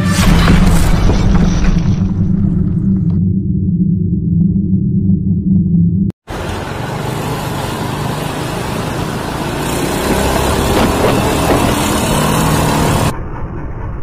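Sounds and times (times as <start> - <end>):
low intro tone: 0.0 - 6.1
motorcycle engine: 6.2 - 13.4
wind and road noise: 6.2 - 14.0.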